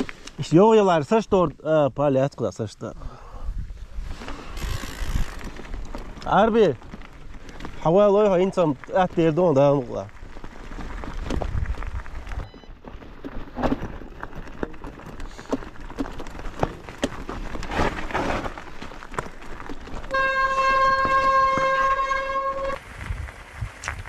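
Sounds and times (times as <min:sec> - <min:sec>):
horn steady note: 0:20.1 - 0:22.8.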